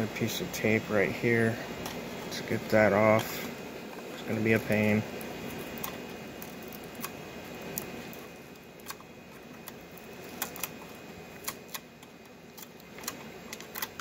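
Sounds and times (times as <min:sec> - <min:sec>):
faint steady background noise: 0:00.0 - 0:14.0
tape peeling clicks and crackles: 0:03.9 - 0:14.0.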